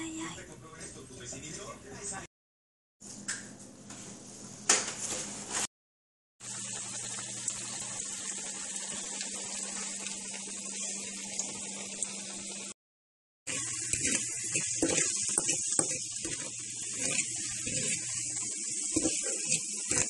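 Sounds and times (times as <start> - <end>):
dough deep-frying in oil: 6.4 - 12.8, 13.5 - 20.0.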